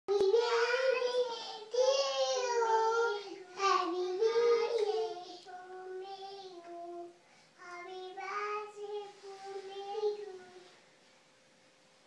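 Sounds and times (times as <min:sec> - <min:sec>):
child singing wordlessly: 0:00.1 - 0:10.8.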